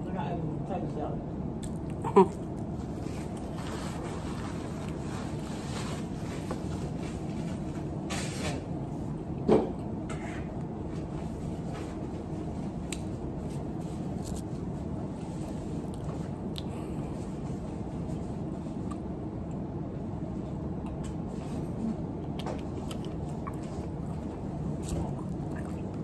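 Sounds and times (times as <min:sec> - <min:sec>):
low room noise: 0:00.0 - 0:26.0
paper napkin rustling: 0:02.8 - 0:08.5
eating clicks: 0:22.2 - 0:26.0.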